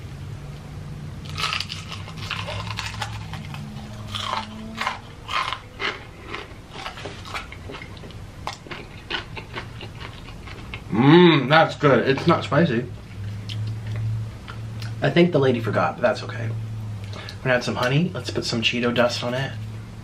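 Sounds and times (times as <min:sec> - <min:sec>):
low steady hum: 0:00.0 - 0:20.0
wet chewing: 0:01.2 - 0:10.9
crunching fried chicken: 0:01.2 - 0:11.0.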